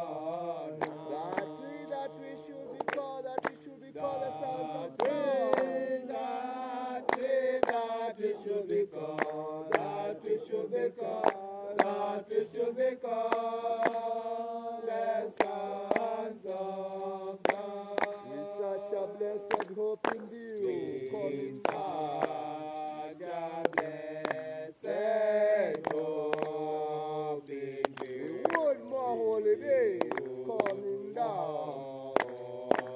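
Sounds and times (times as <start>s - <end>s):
voices chanting a slow melody: 0.0s - 32.9s.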